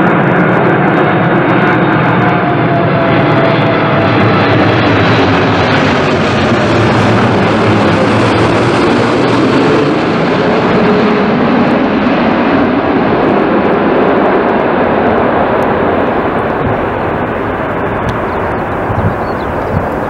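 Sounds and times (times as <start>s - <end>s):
jet engine rumble and roar: 0.0s - 20.0s.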